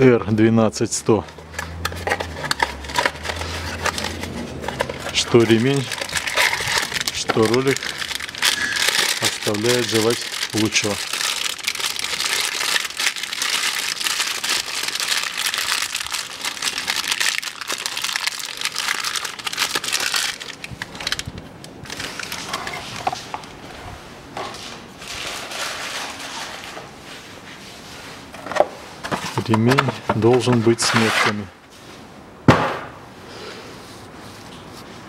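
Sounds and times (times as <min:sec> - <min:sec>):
plastic bag crinkling: 0:01.7 - 0:23.6.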